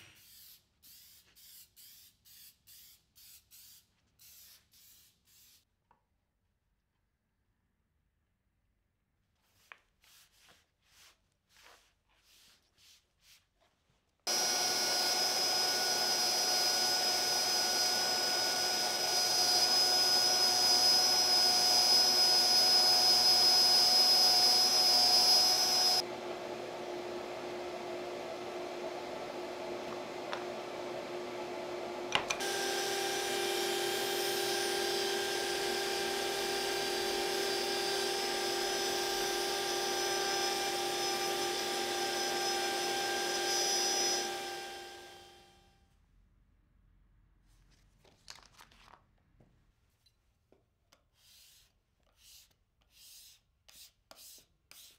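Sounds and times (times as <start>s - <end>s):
router whine: 14.3s - 45.6s.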